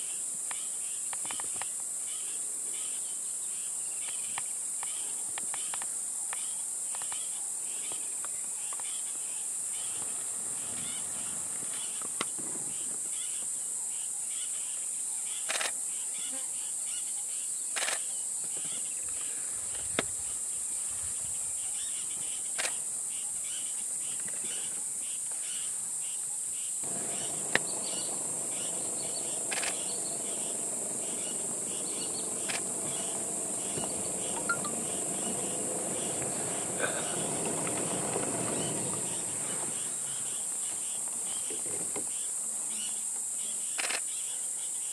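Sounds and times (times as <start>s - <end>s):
insects droning: 0.0s - 44.9s
pulsed chirping: 26.8s - 39.8s
sharp clicks: 29.5s - 29.9s.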